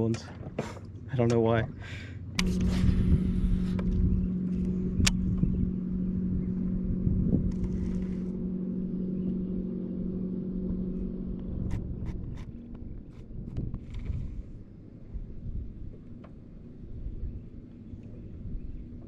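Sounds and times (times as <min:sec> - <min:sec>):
low rumble: 0:01.6 - 0:19.0
electric motor humming: 0:02.4 - 0:14.8.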